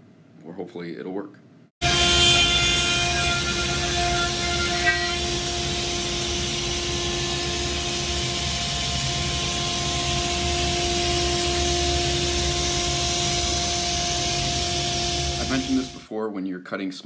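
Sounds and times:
milling spindle high whine: 1.8s - 16.1s
constant rushing hiss: 2.4s - 16.0s.

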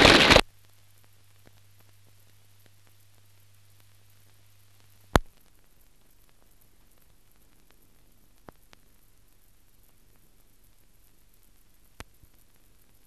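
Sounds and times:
low hum: 0.0s - 7.7s
faint crackles: 0.0s - 13.0s
film soundtrack hiss: 0.0s - 13.0s.

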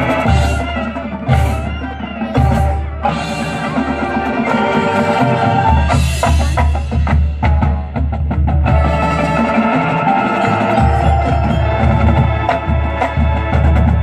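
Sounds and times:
marching band playing: 0.0s - 14.0s
sharp percussion strikes: 5.9s - 14.0s.

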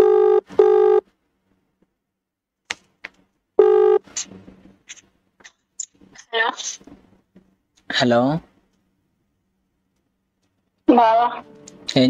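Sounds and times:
telephone ringback tone: 0.0s - 1.0s, 3.6s - 4.0s
faint clicks and rustles: 9.9s - 10.8s.

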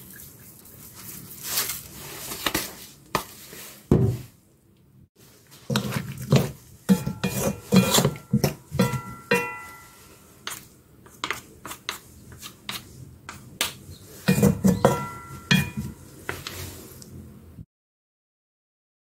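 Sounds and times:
spatula knocking and scraping wok: 5.6s - 16.7s.

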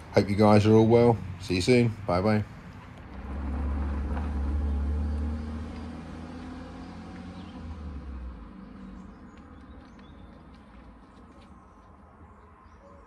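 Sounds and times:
car engine driving off: 2.9s - 11.6s.

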